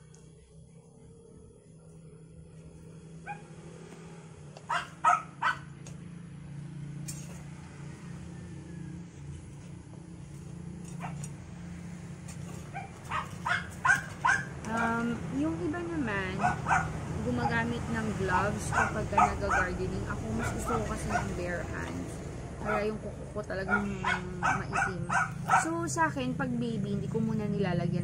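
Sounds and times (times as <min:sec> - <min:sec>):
steady low hum: 0:00.0 - 0:28.0
dog barking: 0:03.2 - 0:03.5, 0:04.7 - 0:05.7, 0:12.7 - 0:15.0, 0:16.3 - 0:17.6, 0:18.6 - 0:21.4, 0:23.7 - 0:25.8.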